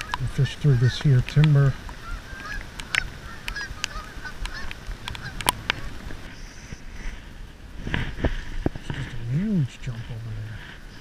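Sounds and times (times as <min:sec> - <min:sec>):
geese honking: 0:00.0 - 0:06.9
sharp clicks: 0:01.0 - 0:06.2.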